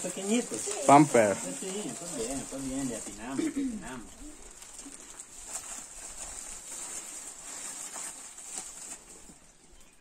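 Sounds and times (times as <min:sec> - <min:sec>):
plastic packages crinkling: 0:00.0 - 0:10.0.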